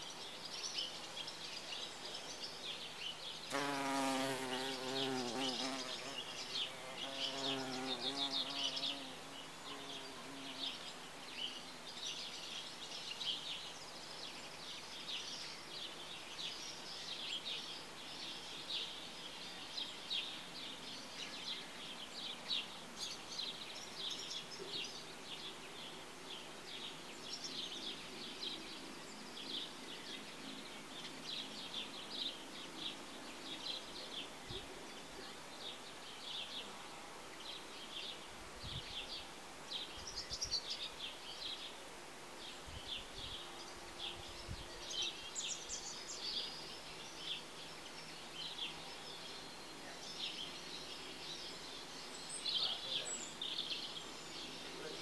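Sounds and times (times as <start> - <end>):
birds chirping: 0.0 - 55.0
bumblebee wings buzzing: 3.5 - 10.8.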